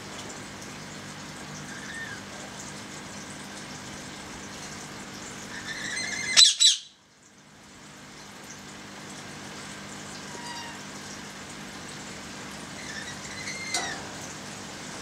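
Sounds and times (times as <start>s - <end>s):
steady background hum: 0.0s - 15.0s
bird squawking: 5.5s - 7.0s.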